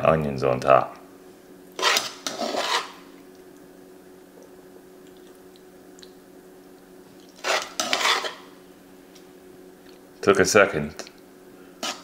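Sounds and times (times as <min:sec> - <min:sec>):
steady low hum: 0:00.0 - 0:12.0
squishy scraping of onions: 0:01.8 - 0:03.1, 0:07.2 - 0:08.6, 0:11.8 - 0:12.0.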